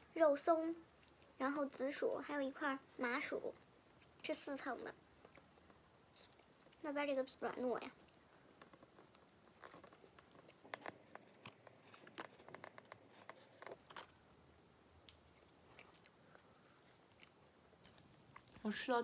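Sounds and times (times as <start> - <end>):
person chewing flaky pastry: 5.2 - 6.8, 8.0 - 14.4, 15.0 - 18.6.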